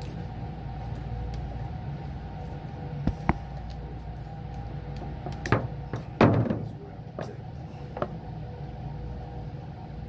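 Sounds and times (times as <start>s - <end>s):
mechanical hum of equipment: 0.0s - 10.0s
handling knocks and clatter: 5.0s - 7.4s.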